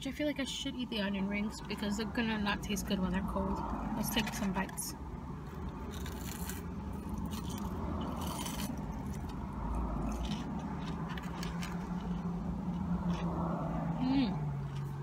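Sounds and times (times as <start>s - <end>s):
crunching and chewing food: 3.6s - 15.0s.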